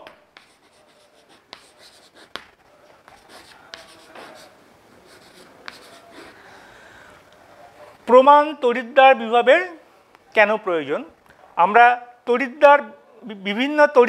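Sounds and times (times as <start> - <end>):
chalk tapping on board: 0.0 - 2.5, 3.1 - 4.6, 5.2 - 6.1
chalk scratching on chalkboard: 0.4 - 2.5, 3.1 - 6.4.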